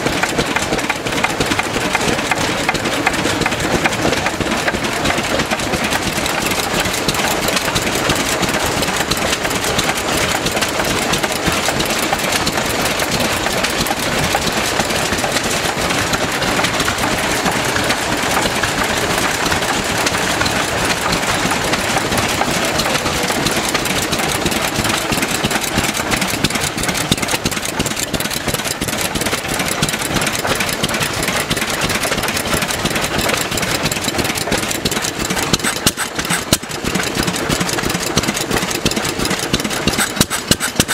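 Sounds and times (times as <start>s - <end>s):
stationary engines running: 0.0s - 40.9s.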